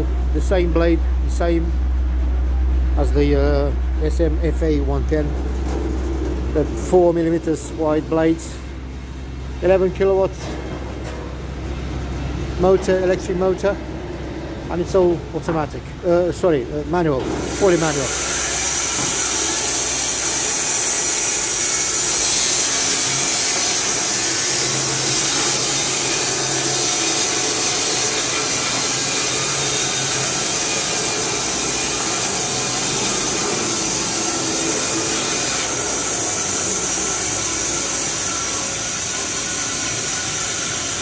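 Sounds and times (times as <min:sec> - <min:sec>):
band sawmill cutting a log: 0:14.7 - 0:41.0.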